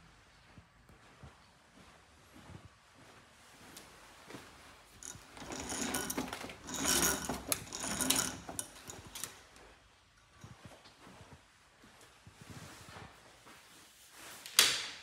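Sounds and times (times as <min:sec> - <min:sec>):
bead chain rattling clicks: 0:05.0 - 0:09.4.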